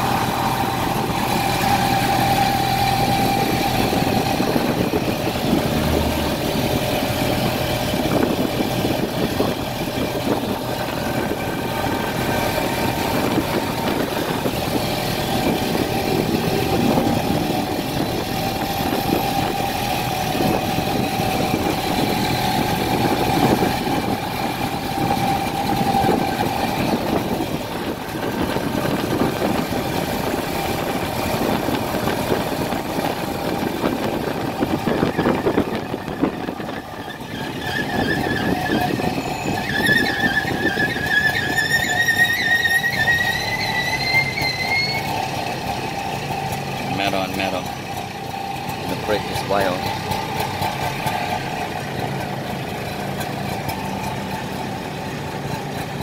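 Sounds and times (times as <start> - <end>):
motorcycle engine running: 0.0 - 56.0
road and passing traffic: 0.0 - 56.0.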